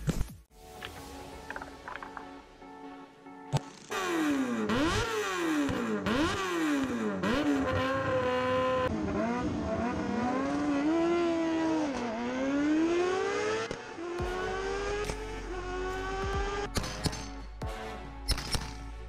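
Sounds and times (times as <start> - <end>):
motorcycle engine revving: 3.6 - 17.3.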